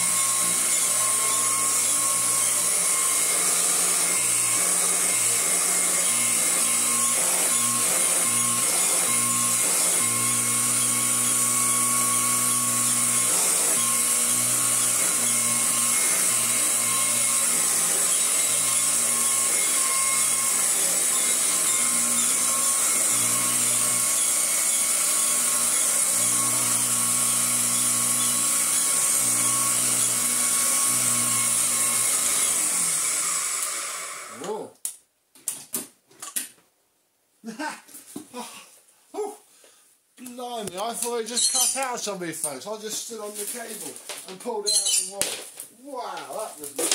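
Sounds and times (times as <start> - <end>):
vacuum cleaner running: 0.0 - 34.4.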